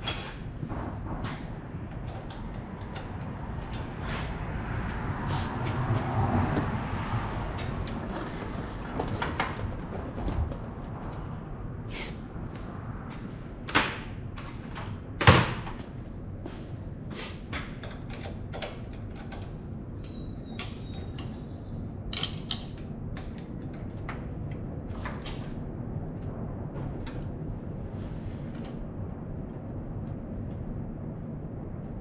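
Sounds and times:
hand tools clanking on metal: 0.0 - 0.5
steady low hum: 0.0 - 32.0.

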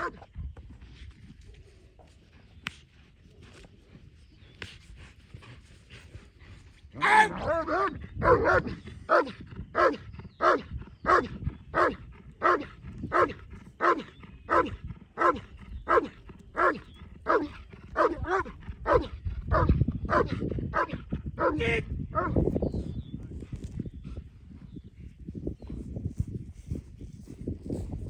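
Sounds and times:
dog barking: 7.0 - 21.6.

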